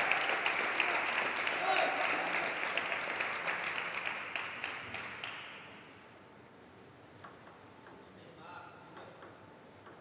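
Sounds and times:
audience applause: 0.0 - 5.4.

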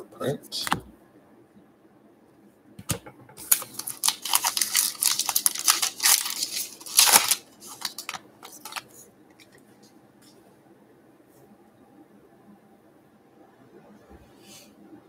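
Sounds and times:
card wrapper crinkling: 3.4 - 9.6.

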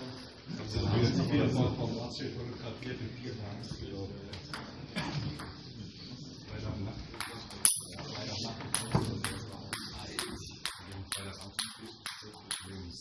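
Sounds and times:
table tennis ball bouncing: 7.2 - 8.0, 8.7 - 13.0.

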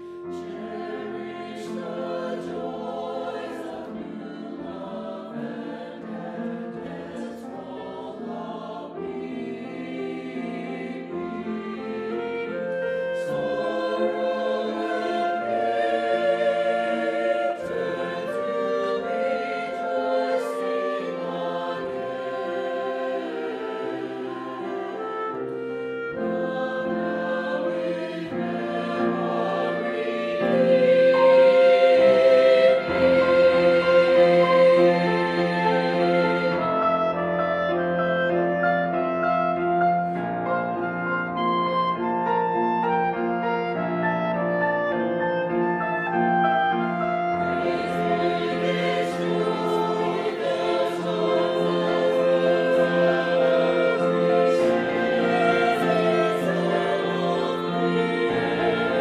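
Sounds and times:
choir singing in parts: 0.0 - 59.0.

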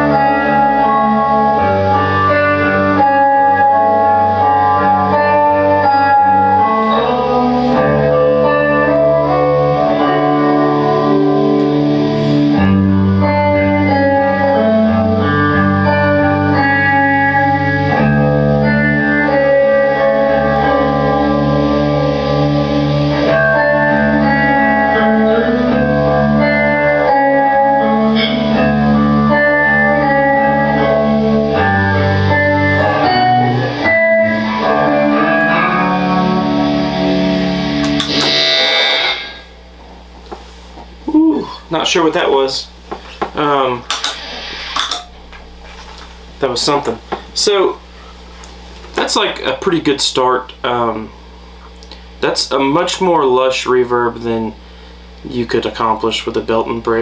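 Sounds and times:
electric guitar chords with reverb: 0.0 - 41.1, 42.7 - 49.2
high burst of noise: 37.4 - 39.9, 43.9 - 45.2.

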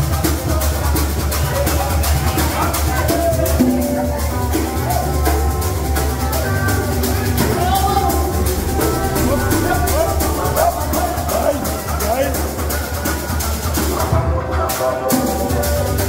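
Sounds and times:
upbeat music with drums and shakers: 0.0 - 16.0.

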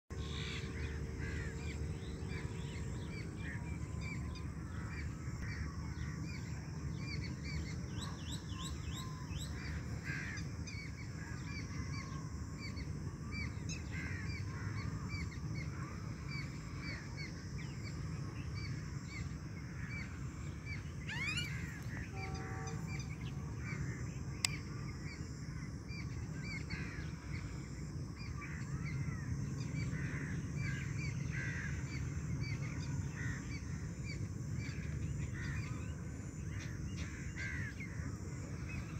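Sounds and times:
birds chirping and calling: 0.1 - 24.8
steady low rumble: 0.1 - 38.9.

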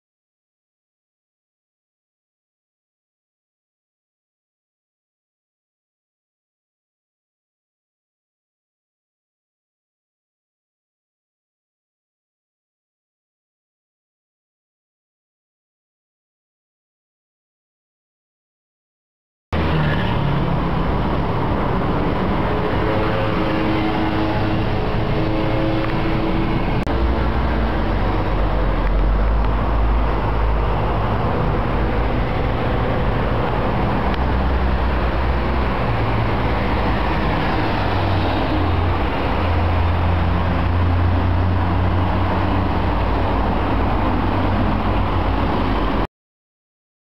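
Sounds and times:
low hum shifting in pitch: 19.6 - 44.9
vehicle engine and road noise: 19.6 - 46.1.

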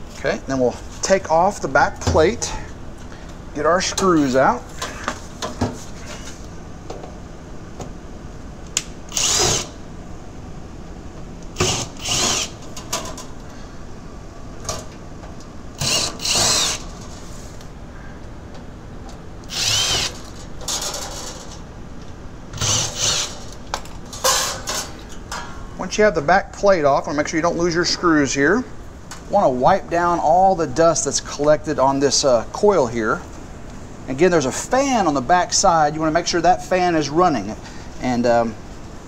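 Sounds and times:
cordless drill whirring: 9.1 - 9.8, 11.6 - 12.6, 15.8 - 16.8, 19.5 - 20.2, 22.6 - 23.4.

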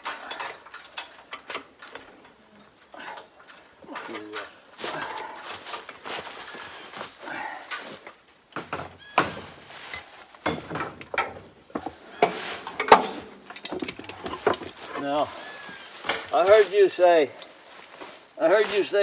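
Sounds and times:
metal clanks of wrench and jack: 0.0 - 6.0, 12.2 - 15.0
footsteps in dry leaves: 4.7 - 8.0, 9.0 - 10.4, 12.1 - 12.7, 14.7 - 19.0.

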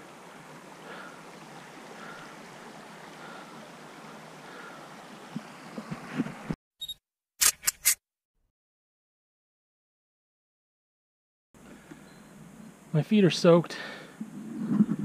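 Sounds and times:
stream rushing: 0.0 - 6.5.

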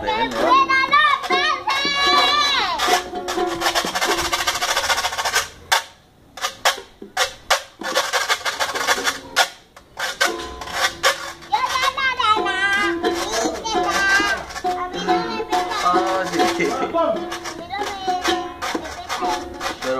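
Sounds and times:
strummed toy guitar: 0.0 - 19.9
metal scraper rhythm: 0.4 - 12.2, 12.8 - 19.9
person singing: 12.4 - 16.7.

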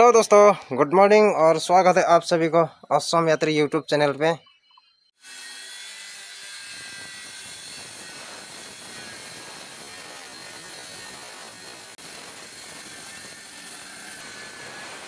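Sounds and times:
circular saw cutting wood: 5.2 - 15.0.

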